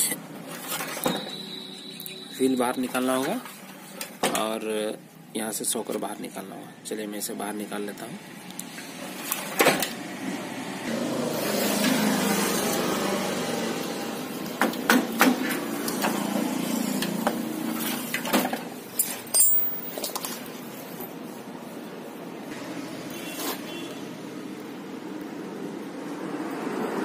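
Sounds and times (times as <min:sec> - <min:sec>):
metal tools clinking and knocking: 0:18.9 - 0:20.3
high metallic ring: 0:19.3 - 0:19.8.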